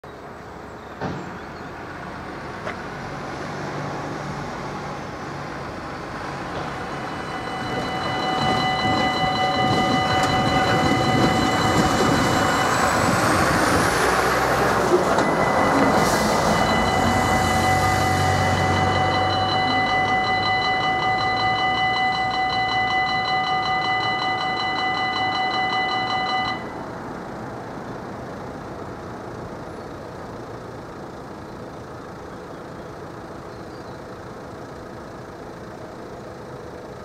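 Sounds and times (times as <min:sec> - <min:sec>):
heavy lorry passing: 0:00.1 - 0:37.0
level crossing warning tones: 0:06.3 - 0:27.1.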